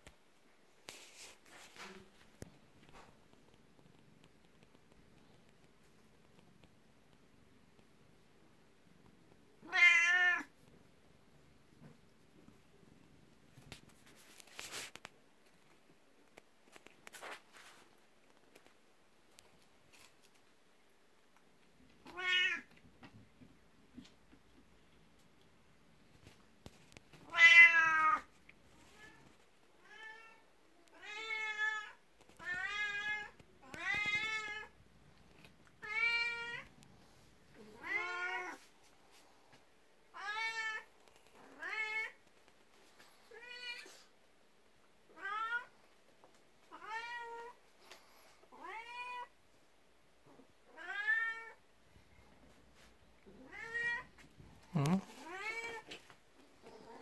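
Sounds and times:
cat meowing: 0:09.6 - 0:10.5, 0:22.0 - 0:22.7, 0:27.2 - 0:28.3, 0:37.6 - 0:38.6, 0:53.4 - 0:54.1.

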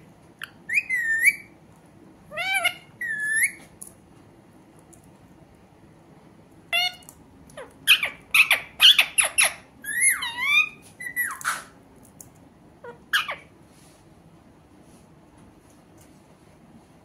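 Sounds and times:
parakeet squawking: 0:00.4 - 0:01.5, 0:02.3 - 0:03.6, 0:06.7 - 0:11.8, 0:12.8 - 0:13.5.

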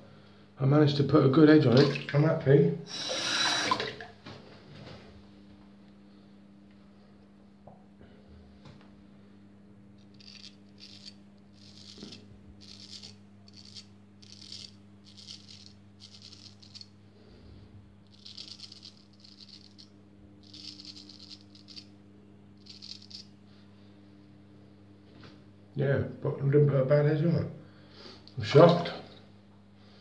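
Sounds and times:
straight razor scraping stubble: 0:10.0 - 0:16.9, 0:18.1 - 0:21.9, 0:22.6 - 0:23.3.

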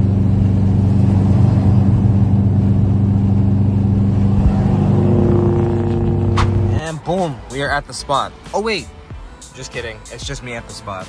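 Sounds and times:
car engine droning inside car: 0:00.0 - 0:06.8.

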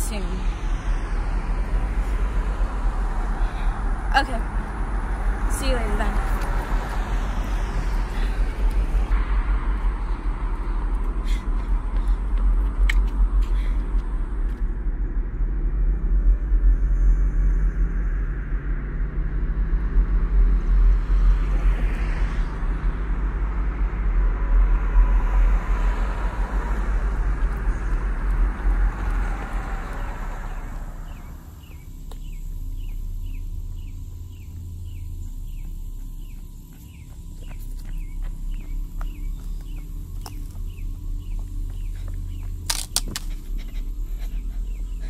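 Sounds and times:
car passing: 0:00.0 - 0:14.8, 0:19.4 - 0:45.0
traffic rumble: 0:00.0 - 0:45.0
bird chirping: 0:31.1 - 0:43.2.

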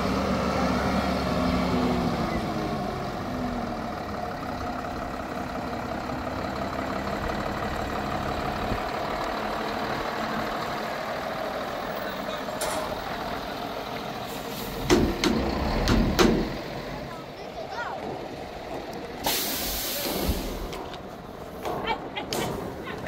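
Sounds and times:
vehicle engine running: 0:00.0 - 0:19.2
loud knocks: 0:14.8 - 0:16.6.

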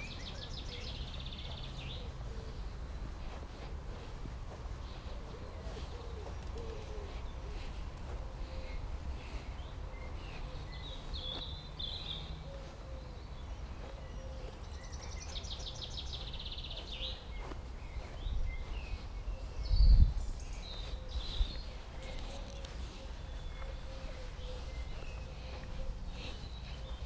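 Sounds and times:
small birds chirping: 0:00.0 - 0:27.0
wind rumble on microphone: 0:17.4 - 0:23.5.

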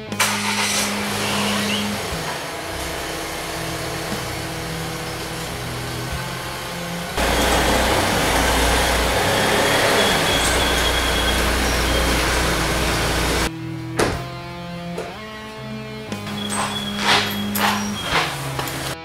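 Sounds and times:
deep bass: 0:00.9 - 0:15.1.

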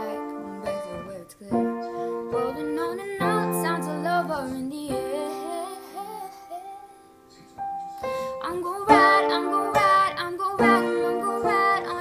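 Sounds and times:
woman singing slow song: 0:00.0 - 0:07.1, 0:08.2 - 0:12.0
instrumental backing of held chords: 0:00.0 - 0:12.0.

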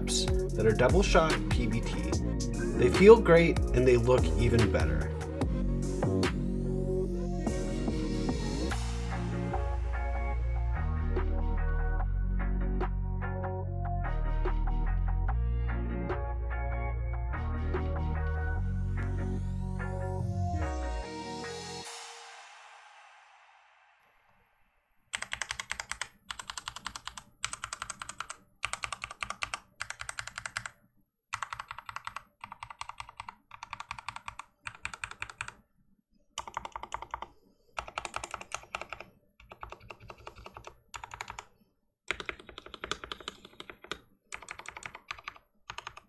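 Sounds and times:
fast typing on mechanical keyboard: 0:25.1 - 0:35.6, 0:36.4 - 0:41.5, 0:42.1 - 0:46.0.

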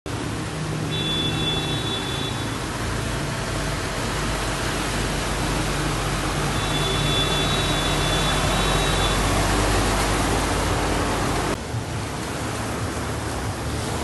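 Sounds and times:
heavy rain hiss: 0:00.1 - 0:14.0
truck diesel engine hum: 0:00.1 - 0:14.0.

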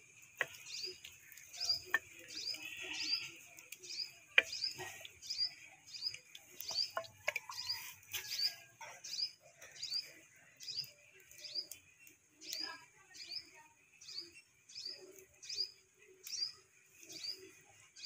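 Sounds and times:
ladle clinking in clay pot: 0:00.3 - 0:09.0
small bird chirping: 0:00.4 - 0:18.0.

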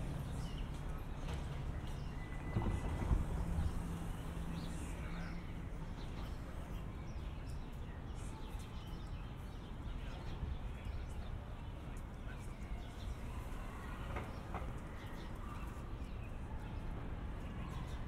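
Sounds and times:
low rumble of traffic: 0:00.0 - 0:18.0
footsteps on pavement: 0:00.2 - 0:03.4.

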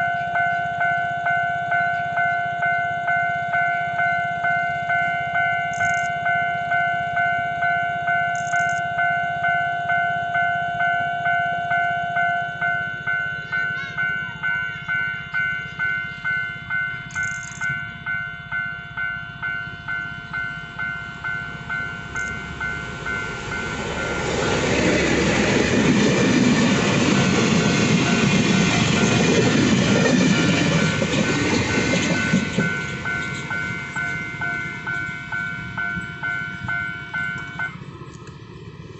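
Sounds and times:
level-crossing warning bell: 0:00.0 - 0:38.9
freight train rumbling past: 0:11.7 - 0:38.9.

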